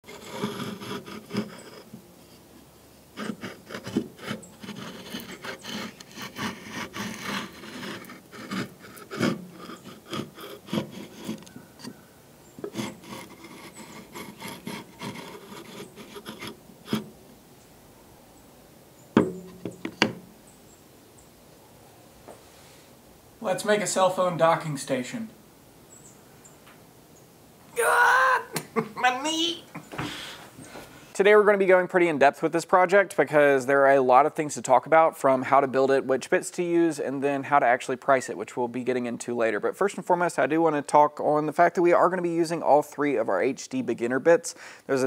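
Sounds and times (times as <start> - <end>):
loud sharp knocks: 19.2 - 20.2.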